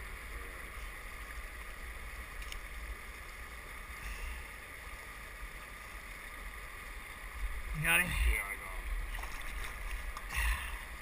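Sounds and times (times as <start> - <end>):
river water hissing: 0.0 - 11.0
faint click: 2.4 - 2.6.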